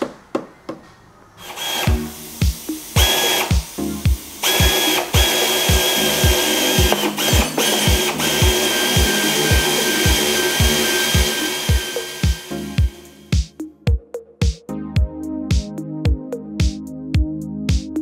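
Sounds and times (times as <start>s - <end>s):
power tool whining: 1.4s - 2.2s, 2.8s - 13.2s
background music with beat: 1.9s - 18.0s.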